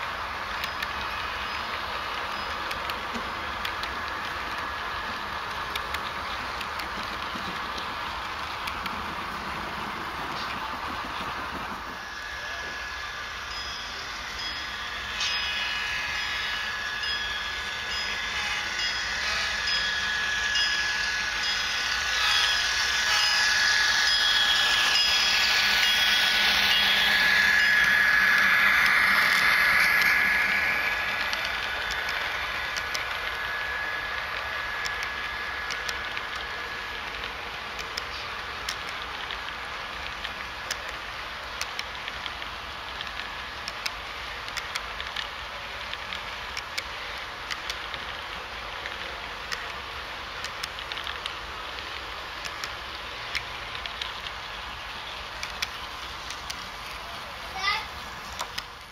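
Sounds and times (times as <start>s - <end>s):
model train running on track: 0.0s - 58.9s
bell ringing: 12.0s - 36.6s.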